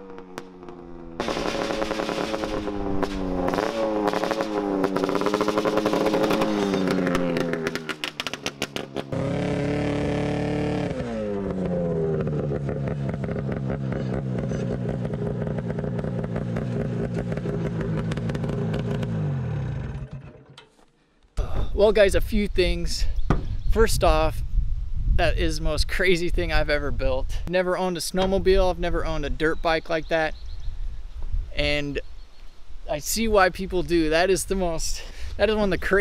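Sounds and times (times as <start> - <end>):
two-stroke engine revving: 0.0 - 20.6.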